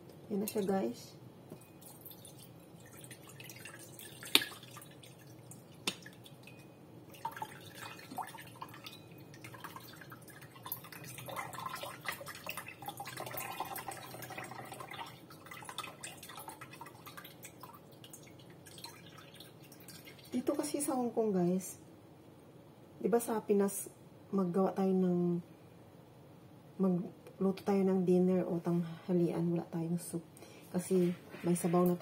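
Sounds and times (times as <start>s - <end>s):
coconut water dripping into a bowl: 1.5s - 20.4s.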